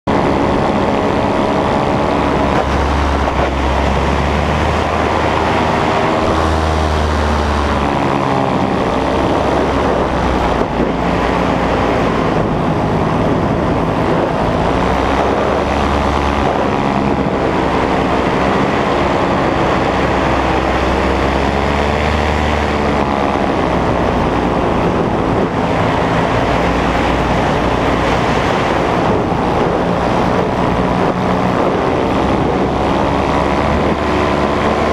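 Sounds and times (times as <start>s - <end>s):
paramotor engine and propeller: 0.0s - 34.9s.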